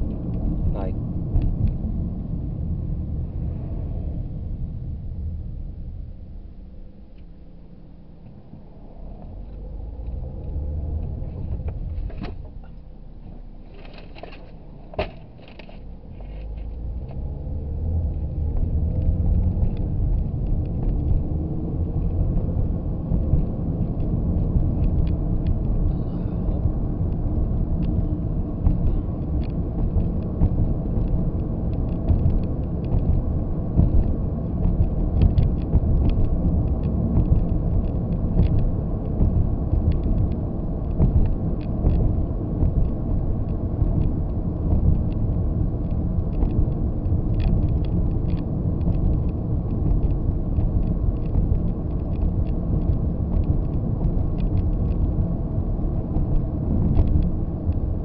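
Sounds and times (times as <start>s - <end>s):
car engine and road rumble: 0.0s - 58.0s.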